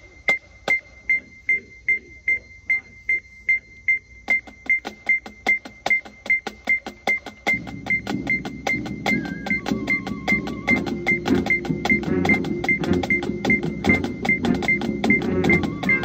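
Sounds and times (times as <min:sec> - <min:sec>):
metronome beeping: 0:00.0 - 0:16.0
sharp percussive clicks: 0:04.3 - 0:16.0.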